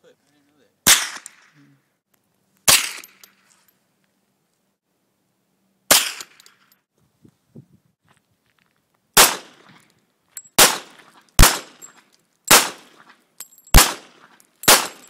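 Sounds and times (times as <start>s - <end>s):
gunshots echoing: 0.9s - 1.5s, 5.9s - 6.4s, 9.2s - 9.7s, 10.6s - 11.9s, 12.5s - 13.0s, 13.8s - 15.0s.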